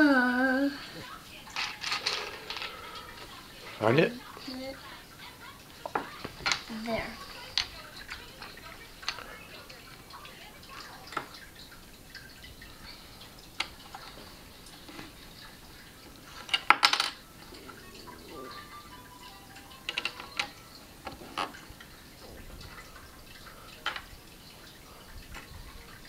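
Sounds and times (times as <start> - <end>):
plastic bricks clicking: 1.5 - 2.8, 16.4 - 17.2, 19.8 - 20.5.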